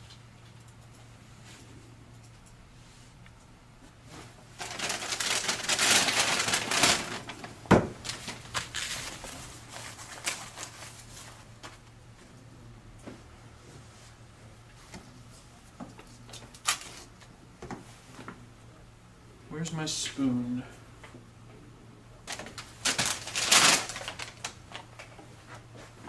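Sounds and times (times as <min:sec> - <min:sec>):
paper bag rustling and crinkling: 0:04.1 - 0:11.8, 0:22.3 - 0:26.0.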